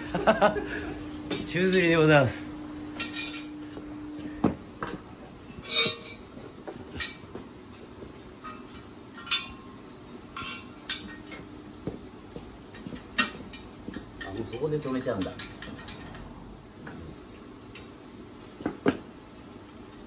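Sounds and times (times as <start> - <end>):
metal tools clinking: 3.0 - 3.8.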